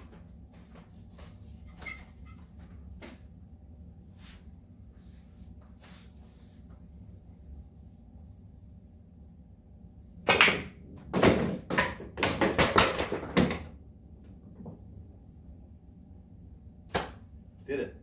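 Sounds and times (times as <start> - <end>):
pool cue striking ball: 10.2 - 13.7
pool balls knocking and clattering: 10.2 - 15.1.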